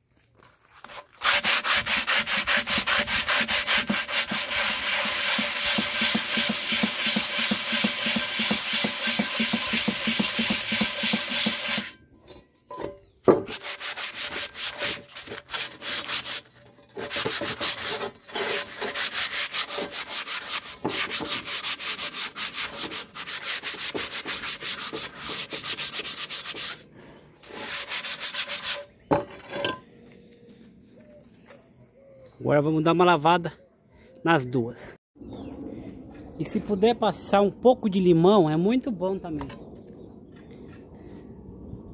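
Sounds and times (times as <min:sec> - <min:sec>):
scrubbing rust off a pot: 0:00.7 - 0:12.0, 0:12.6 - 0:26.8, 0:27.4 - 0:29.7.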